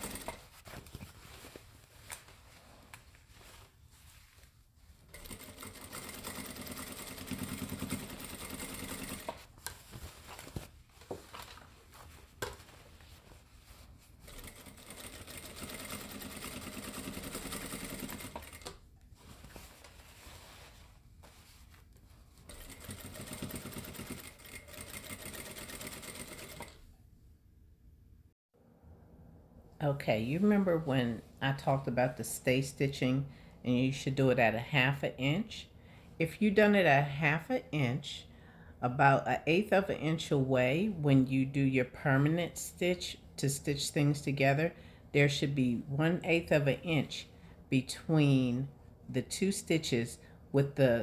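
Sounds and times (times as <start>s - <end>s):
sewing machine running: 0.0s - 0.4s, 5.2s - 9.4s, 14.3s - 18.7s, 22.5s - 26.8s.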